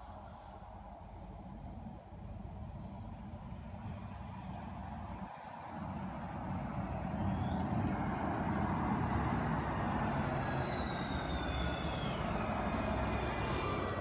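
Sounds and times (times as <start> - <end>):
car driving past: 5.7 - 14.0.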